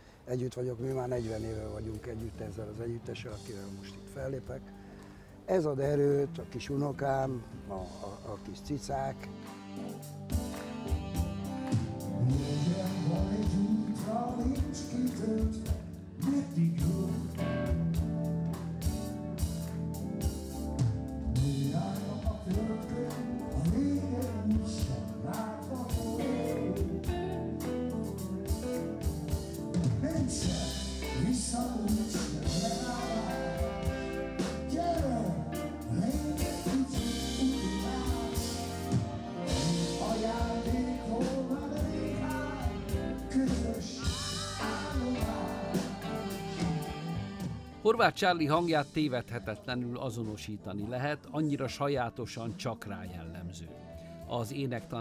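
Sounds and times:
bass: 0:00.0 - 0:55.0
electric guitar: 0:03.4 - 0:48.0
drum kit: 0:05.8 - 0:50.4
saxophone: 0:07.4 - 0:48.9
man singing lead vocals: 0:11.6 - 0:18.2, 0:21.3 - 0:27.7, 0:29.9 - 0:55.0
backing singers: 0:30.0 - 0:47.9.

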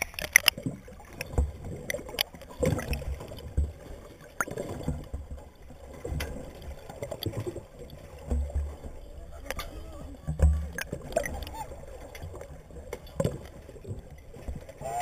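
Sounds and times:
seawater sloshing and gurgling: 0:00.0 - 0:15.0
low underwater thumps: 0:00.6 - 0:09.0, 0:09.6 - 0:11.5.

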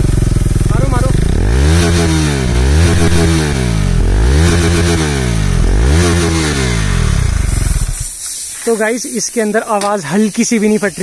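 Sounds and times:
motorcycle engine revving: 0:00.0 - 0:08.2.

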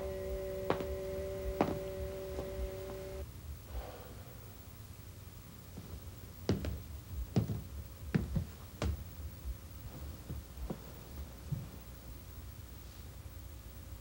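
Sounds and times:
two-note tone: 0:00.0 - 0:03.2
low hum: 0:00.0 - 0:08.1.

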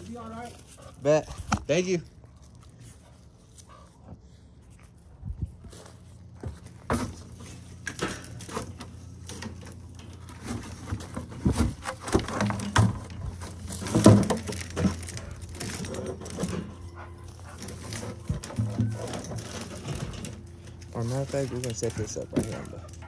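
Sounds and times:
steady low hum: 0:00.0 - 0:23.0
plastic clacks and scrapes: 0:06.4 - 0:23.0.

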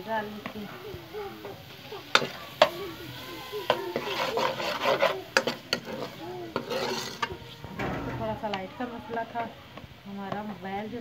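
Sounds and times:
spoon stirring and scraping onions: 0:01.4 - 0:10.6
spoon clanking against pan: 0:02.1 - 0:02.8, 0:03.6 - 0:09.4.

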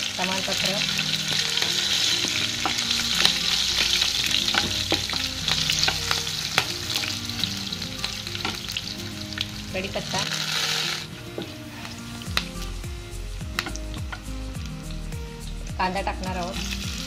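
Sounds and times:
mustard seeds crackling and popping: 0:00.0 - 0:17.0
oil sizzling: 0:00.0 - 0:17.0
wooden spatula stirring: 0:01.3 - 0:07.1.

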